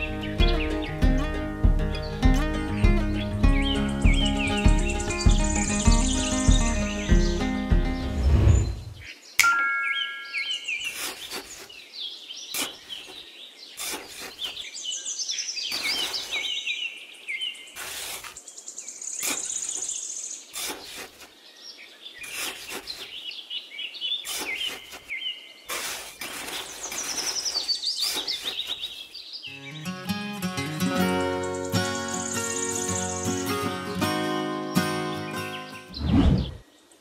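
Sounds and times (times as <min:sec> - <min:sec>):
birds chirping and singing: 0:00.0 - 0:36.8
tool scraping in sand: 0:10.8 - 0:11.8, 0:12.5 - 0:14.7, 0:15.7 - 0:16.6, 0:17.7 - 0:18.4, 0:19.2 - 0:21.4, 0:22.2 - 0:23.3, 0:24.2 - 0:29.1.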